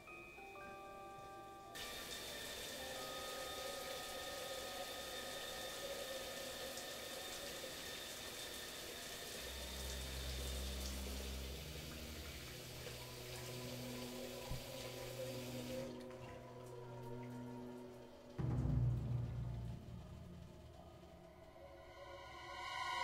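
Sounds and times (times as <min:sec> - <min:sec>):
steady music tones: 0:00.0 - 0:23.0
shower running: 0:01.1 - 0:20.7
deep low music notes: 0:09.5 - 0:23.0.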